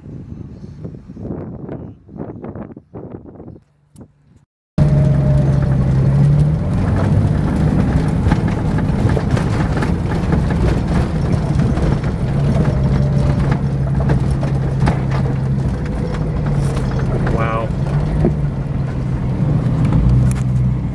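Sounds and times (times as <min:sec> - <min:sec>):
vehicle engine running: 0:04.0 - 0:20.9
vehicle knocks and rattles: 0:04.8 - 0:20.9.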